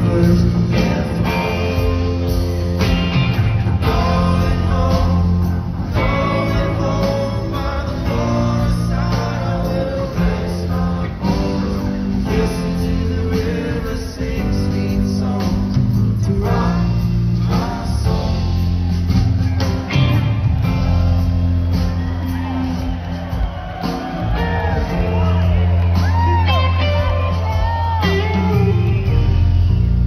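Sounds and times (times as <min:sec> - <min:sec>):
person singing: 0:00.0 - 0:02.9, 0:03.8 - 0:18.4
live band playing: 0:00.0 - 0:30.0.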